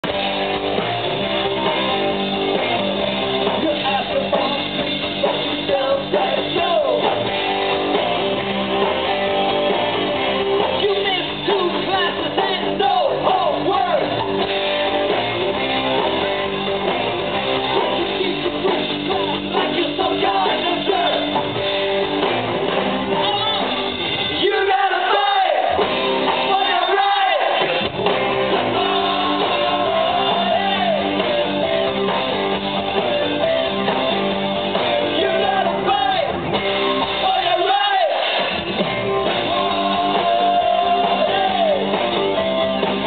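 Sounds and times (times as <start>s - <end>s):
live band playing: 0.0s - 43.0s
person singing into a microphone: 5.6s - 7.1s, 18.0s - 21.4s, 28.7s - 31.2s, 39.4s - 41.9s.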